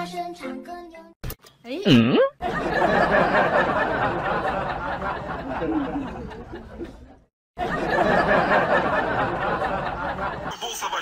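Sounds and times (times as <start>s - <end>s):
many voices chuckling and chattering: 2.4s - 11.0s.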